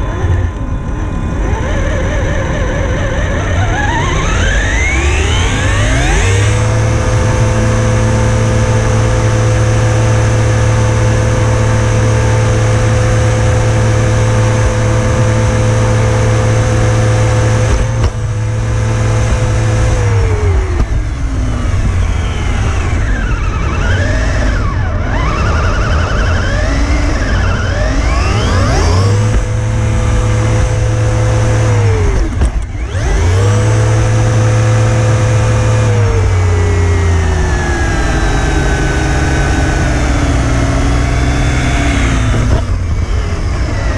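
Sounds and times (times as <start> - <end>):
toy car motor whining: 0.0 - 7.1, 19.3 - 37.1
tyre noise on tarmac: 1.6 - 43.9.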